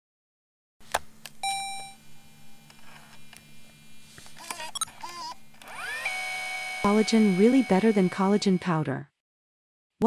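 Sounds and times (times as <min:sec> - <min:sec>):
low hum with tape hiss: 0:00.9 - 0:04.4
short beep: 0:01.4 - 0:02.0.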